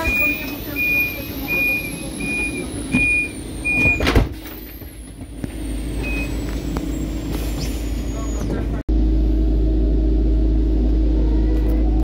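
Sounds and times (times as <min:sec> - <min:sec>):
high electronic warning beeps: 0:00.0 - 0:04.1, 0:06.0 - 0:06.4.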